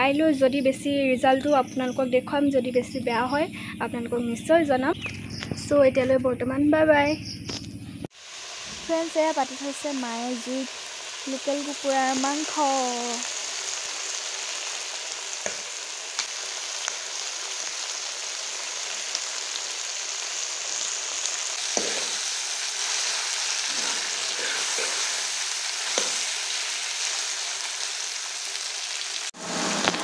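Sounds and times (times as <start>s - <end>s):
chicken sizzling in a pan: 8.1s - 30.0s.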